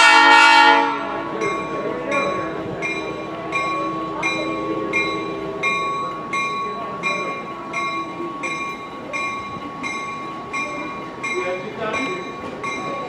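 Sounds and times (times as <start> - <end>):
locomotive air horn: 0.0 - 1.4
locomotive bell ringing: 0.0 - 13.0
locomotive moving slowly: 0.0 - 13.0.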